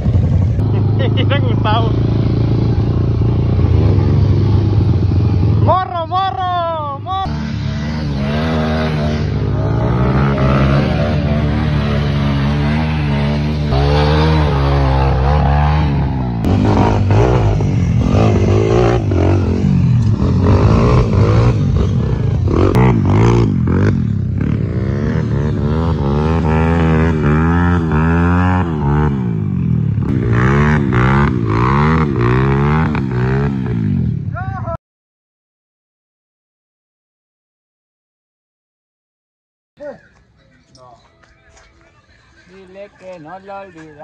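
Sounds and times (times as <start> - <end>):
motorcycle engines revving: 0.0 - 34.7.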